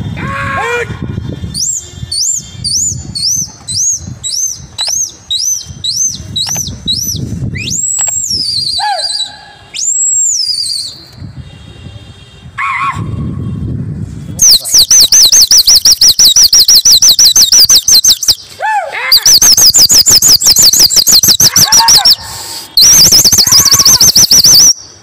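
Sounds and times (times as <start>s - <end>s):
shrill trilled whistling: 14.4s - 18.4s, 19.2s - 22.2s, 22.8s - 24.9s.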